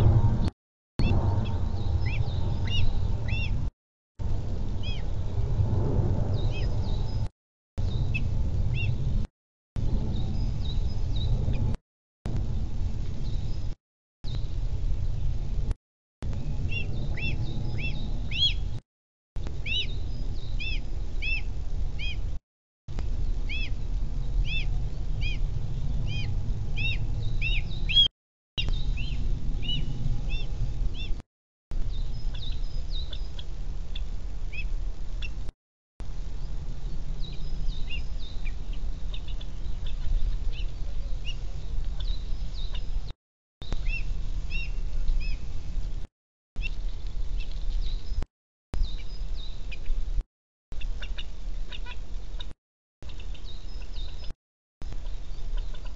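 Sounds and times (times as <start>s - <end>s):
steady low rumble: 0.0s - 18.8s, 19.4s - 28.0s, 28.6s - 35.2s
songbirds chirping: 1.0s - 3.7s, 6.2s - 9.2s, 12.4s - 15.6s, 16.2s - 18.8s, 19.4s - 22.3s, 23.0s - 31.2s, 31.8s - 35.5s, 36.1s - 45.5s, 46.6s - 50.1s, 50.8s - 55.9s.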